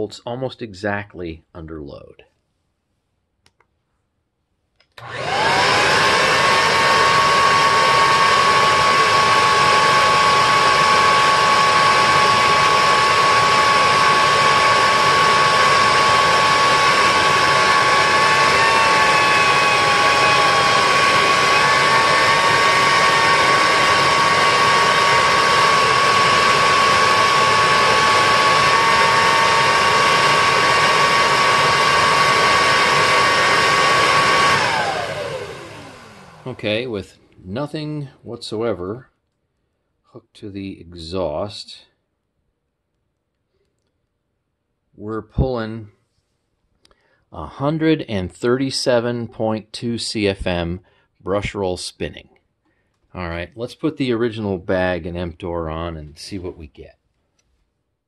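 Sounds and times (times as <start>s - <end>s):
vacuum cleaner motor whine: 5.0s - 36.9s.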